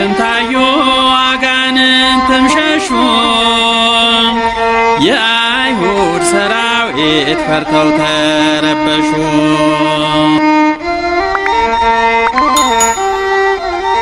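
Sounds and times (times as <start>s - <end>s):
sustained instrumental backing: 10.9s - 14.0s.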